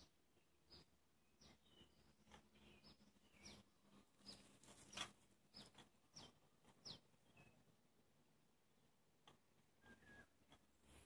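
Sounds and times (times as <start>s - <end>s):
faint bird chirps: 0.0s - 7.8s, 9.6s - 11.0s.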